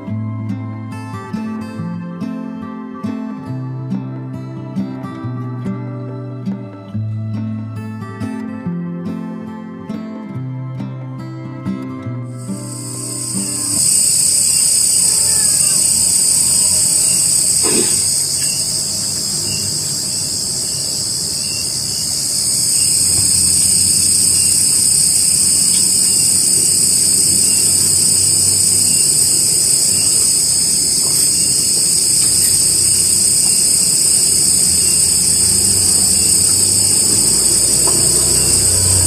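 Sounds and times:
high-pitched insect chorus: 12.4s - 39.0s.

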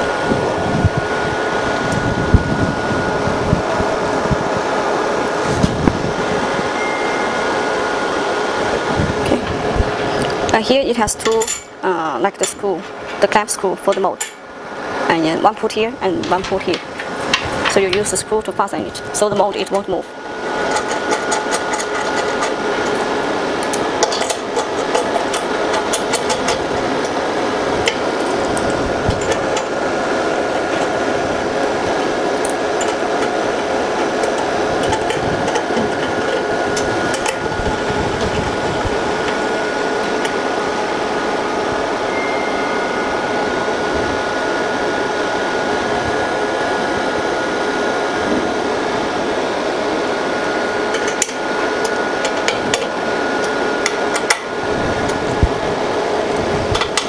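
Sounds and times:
steady high tone: 0.0s - 20.8s, 39.0s - 47.4s
cooling fan whirring hum: 0.0s - 57.0s.

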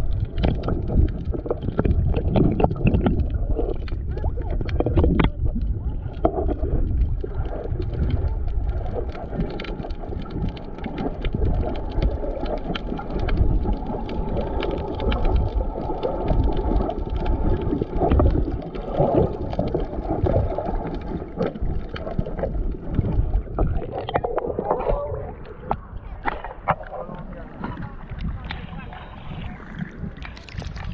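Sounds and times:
faint crackles and clicks: 0.0s - 30.9s
underwater rushing and gurgling: 0.0s - 30.9s.

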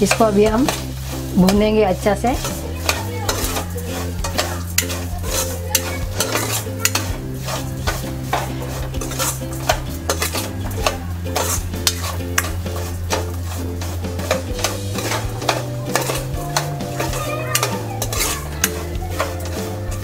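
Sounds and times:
ghee sizzling: 0.0s - 20.0s
ladle scraping metal pan: 0.0s - 20.0s.

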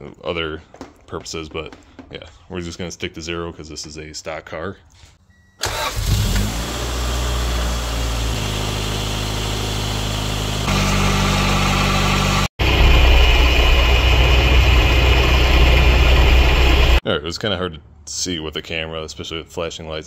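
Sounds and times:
car engine idling: 5.7s - 17.0s.

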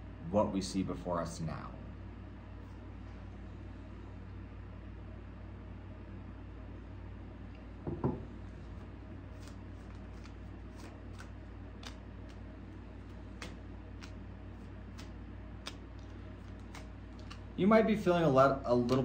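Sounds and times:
cards being shuffled: 9.3s - 17.6s, 18.8s - 19.0s.

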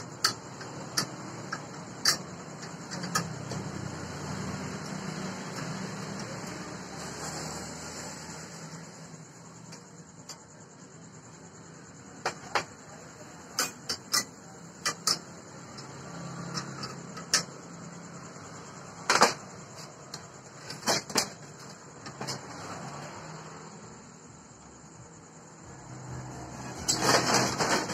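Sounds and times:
metal parts clicking and knocking: 0.0s - 6.6s, 12.2s - 18.3s, 19.0s - 22.6s, 26.6s - 27.9s.

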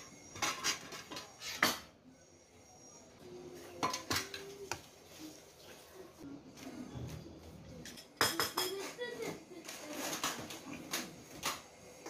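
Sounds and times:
dishes and spoons clinking: 0.0s - 2.0s, 3.7s - 4.8s, 7.0s - 12.0s.

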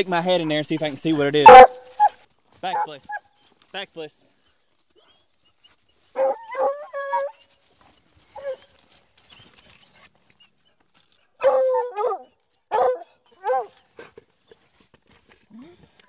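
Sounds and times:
hounds barking and bawling: 1.4s - 3.2s, 6.1s - 7.4s, 11.4s - 14.2s
scrabbling in dry leaves: 4.4s - 11.2s.

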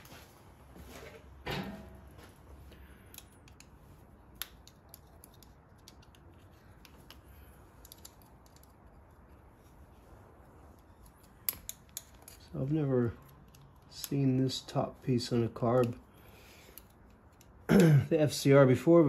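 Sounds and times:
small clicks of handling parts: 2.5s - 9.9s, 10.5s - 14.8s, 15.6s - 17.7s.

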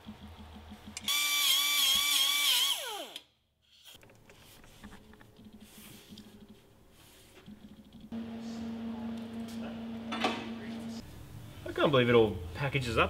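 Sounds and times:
power tool whining and spinning down: 1.1s - 3.2s.

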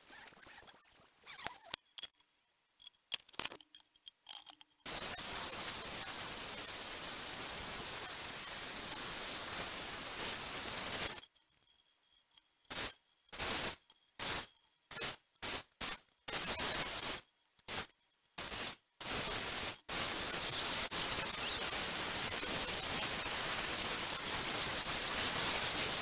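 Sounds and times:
angle grinder hissing: 4.9s - 11.3s, 12.7s - 26.0s.

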